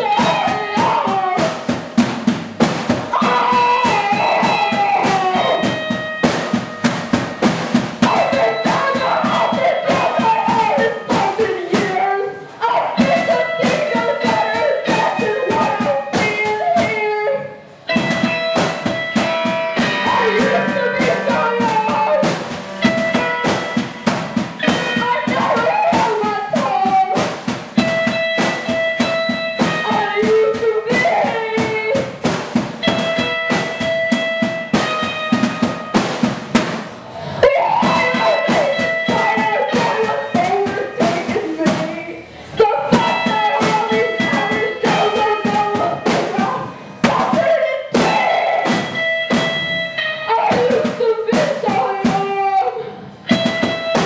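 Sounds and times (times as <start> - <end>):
drum kit playing fast: 0.0 - 54.0
held instrument notes: 17.6 - 26.9
woman singing: 37.4 - 48.4, 50.4 - 52.9.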